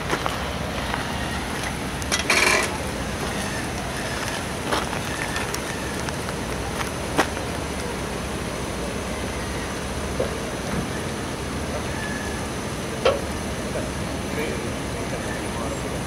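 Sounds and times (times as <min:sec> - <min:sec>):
heavy truck rumbling: 0:00.0 - 0:16.0
tyres crackling: 0:00.0 - 0:16.0.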